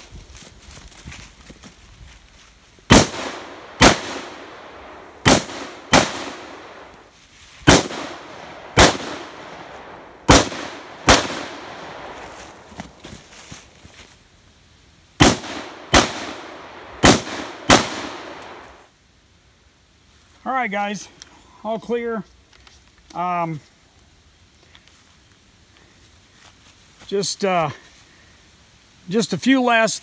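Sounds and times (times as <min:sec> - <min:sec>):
rifle shots with echo: 0:02.9 - 0:06.9, 0:07.7 - 0:12.3, 0:15.2 - 0:18.8.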